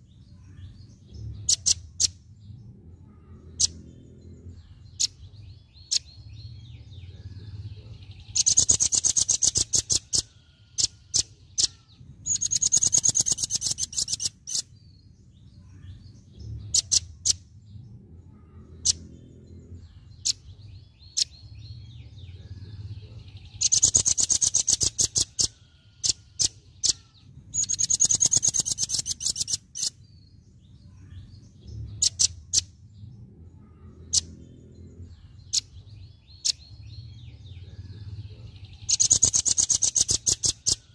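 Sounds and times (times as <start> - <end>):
bird trilling: 1.4 - 2.2, 7.1 - 14.8, 16.6 - 17.5, 22.4 - 30.1, 31.9 - 32.8, 33.6 - 40.9
bird chip calls: 7.1 - 14.8, 16.6 - 17.4, 22.4 - 30.1, 31.9 - 32.8, 33.6 - 40.9.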